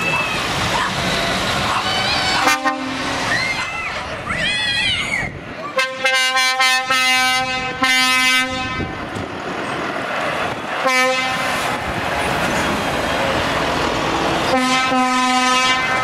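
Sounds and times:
heavy truck driving past: 0.0s - 3.6s, 8.4s - 16.0s
truck air horn blasts: 2.4s - 3.2s, 5.8s - 8.9s, 10.8s - 11.5s, 14.5s - 16.0s.

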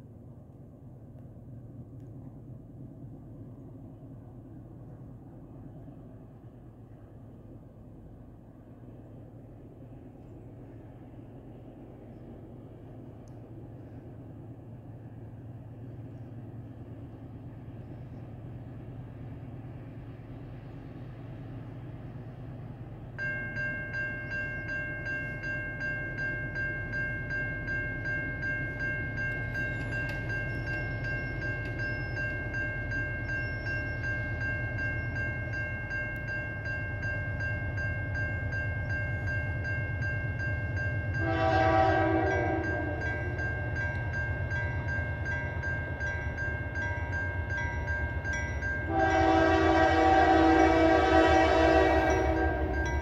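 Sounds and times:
low rumble of train: 0.0s - 53.0s
locomotive air horn chord: 41.2s - 43.4s, 48.9s - 52.8s.

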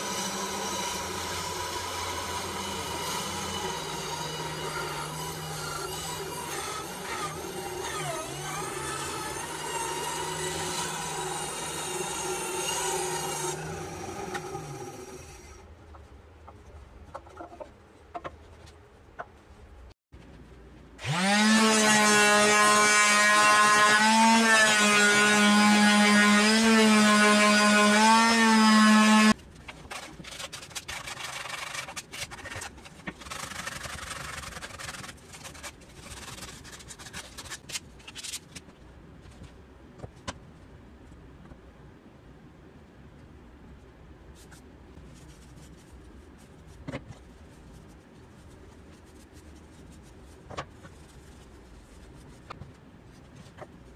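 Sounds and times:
band saw cutting wood: 0.0s - 15.6s, 21.0s - 29.4s
rubbing and handling noises: 29.3s - 41.4s, 43.8s - 53.9s.

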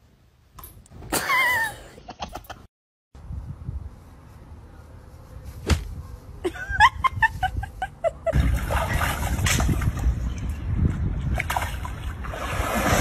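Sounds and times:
rushing water from a pool: 12.1s - 13.0s.

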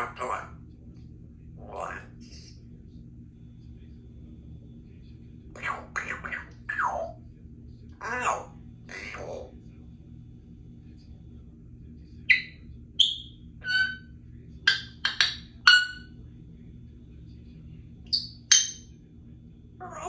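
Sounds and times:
parrot clicking and popping calls: 14.7s - 16.0s.

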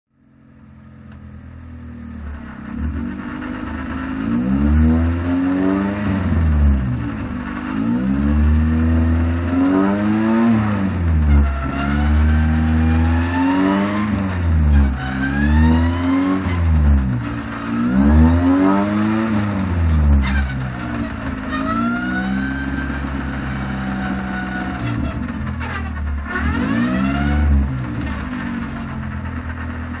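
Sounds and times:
race car engine accelerating: 1.1s - 30.0s.

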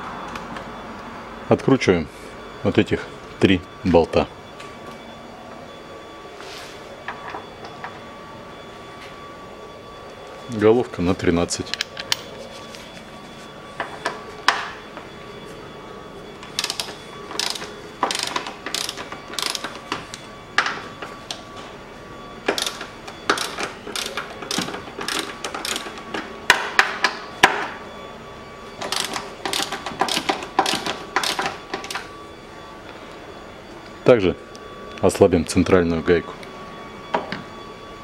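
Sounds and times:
socket ratchet clicking: 16.6s - 19.7s, 22.6s - 25.9s, 28.8s - 32.0s.

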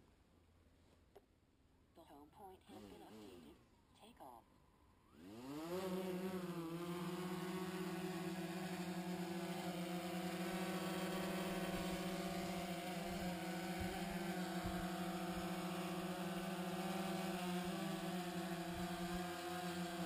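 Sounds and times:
drone propellers buzzing: 5.1s - 20.0s.

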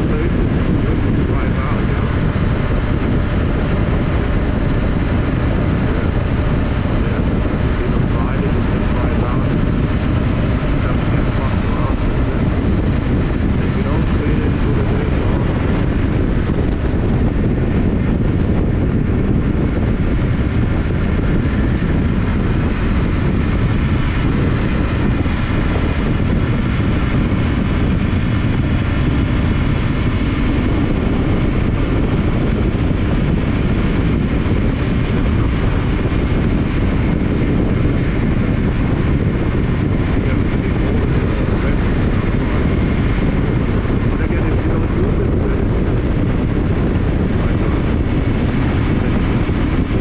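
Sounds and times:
motorcycle engine cruising: 0.0s - 50.0s
wind rush over microphone: 0.0s - 50.0s.

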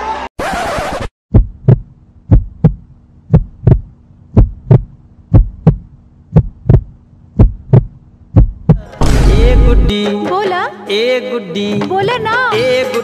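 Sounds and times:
heartbeat thumps: 1.3s - 9.9s
steady low hum: 1.3s - 9.9s.

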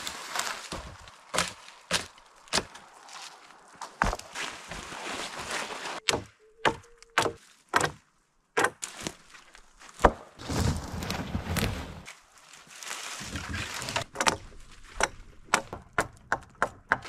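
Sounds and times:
dry branches rustling and scraping: 0.0s - 6.0s, 8.8s - 15.5s.

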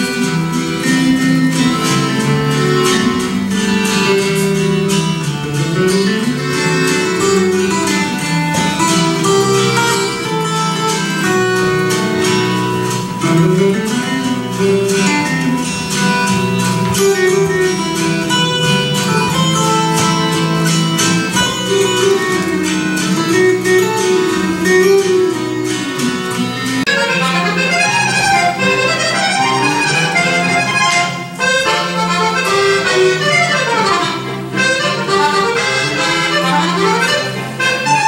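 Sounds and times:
plucked acoustic guitar: 0.0s - 38.0s.

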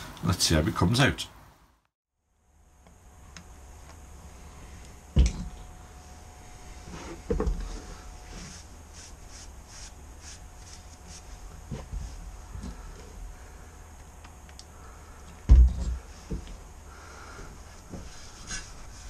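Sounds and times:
wet sponge wiping metal pipe: 6.8s - 13.1s, 17.8s - 19.0s.

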